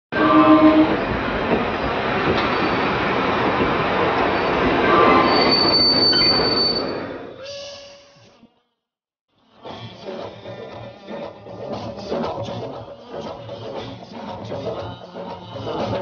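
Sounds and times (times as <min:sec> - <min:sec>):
high wheel squeal: 0:00.1 - 0:01.2, 0:01.8 - 0:03.0, 0:04.3 - 0:08.4
train rumbling past: 0:00.1 - 0:07.4.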